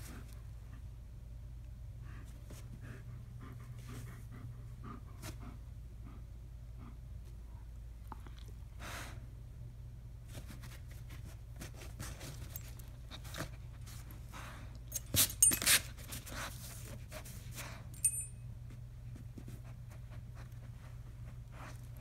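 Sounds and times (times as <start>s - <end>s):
low steady hum: 0.0s - 22.0s
metal collar tags clinking: 14.9s - 15.9s, 17.9s - 18.4s.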